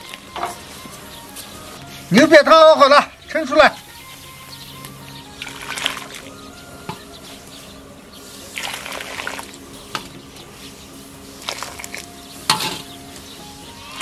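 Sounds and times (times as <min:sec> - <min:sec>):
liquid pouring and splashing: 0:08.5 - 0:09.5, 0:11.4 - 0:12.0.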